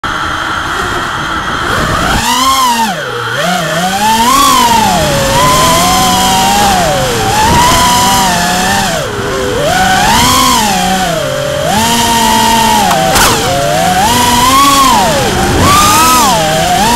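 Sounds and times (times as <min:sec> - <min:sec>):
quadcopter motors buzzing whine: 0:00.1 - 0:16.9.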